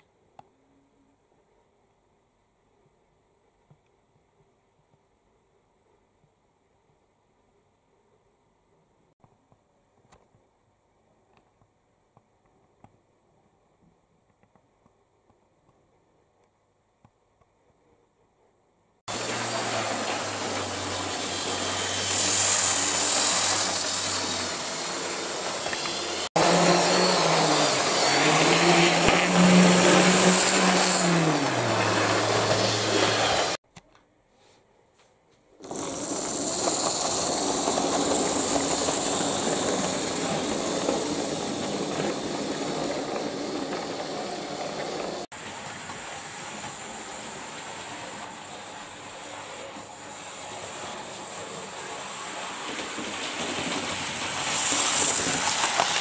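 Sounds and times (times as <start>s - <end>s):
model train motors humming: 19.1s - 33.6s, 35.6s - 56.0s
track running noise: 19.1s - 33.6s, 35.6s - 56.0s.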